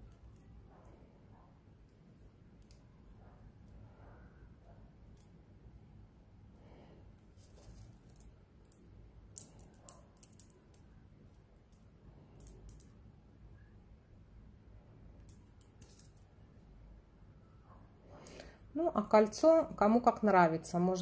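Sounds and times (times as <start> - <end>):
jewelry clicking and clinking: 7.3 - 13.0, 15.2 - 16.4.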